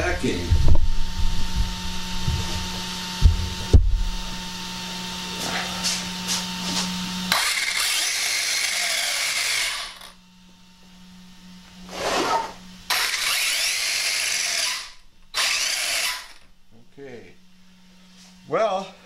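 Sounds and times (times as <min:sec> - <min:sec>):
electric motor revving high whir: 0:00.0 - 0:10.3, 0:11.7 - 0:16.5.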